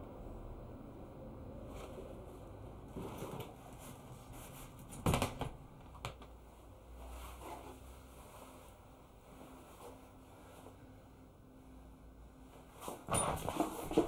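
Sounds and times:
clothes rustling: 6.5s - 11.2s, 12.4s - 14.0s.

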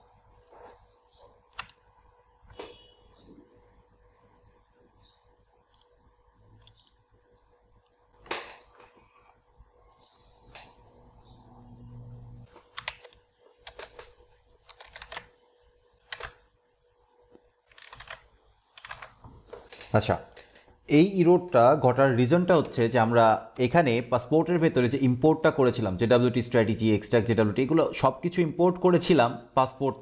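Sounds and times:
keyboard and mouse clicks: 1.5s - 2.8s, 5.6s - 6.0s, 6.6s - 10.8s, 12.5s - 15.3s, 16.0s - 16.4s, 17.4s - 18.2s, 18.8s - 19.2s.

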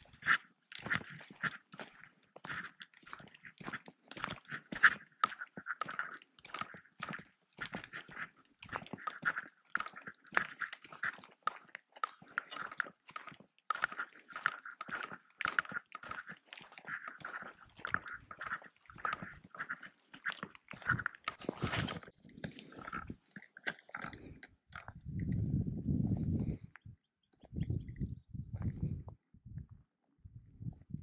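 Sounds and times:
footsteps crunching on dry grass: 14.9s - 22.1s
close rustling scrapes: 16.1s - 22.7s.

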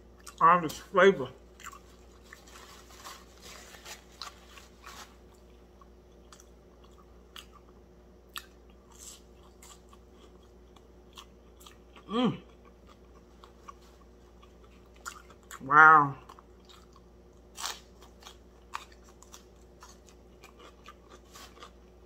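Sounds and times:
person chewing crunchy food: 0.0s - 22.0s
person humming: 12.1s - 12.5s.

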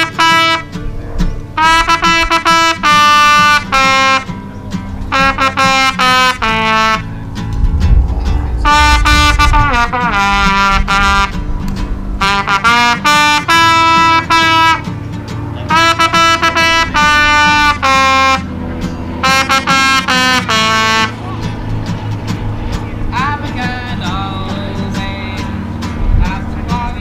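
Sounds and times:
horn playing a melody: 0.0s - 0.9s, 1.6s - 7.8s, 8.4s - 21.2s
steady low backing music: 0.2s - 27.0s.

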